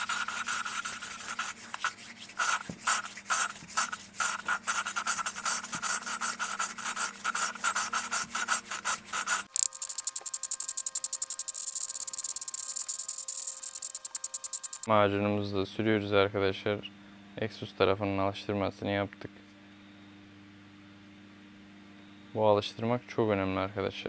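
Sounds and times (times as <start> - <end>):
gritty valve lapping rubbing: 0.0 - 9.5
fast high-pitched ticking: 9.5 - 14.9.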